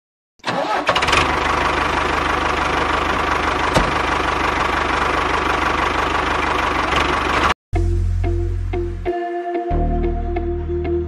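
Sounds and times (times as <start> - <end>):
tractor engine running: 0.4 - 7.6.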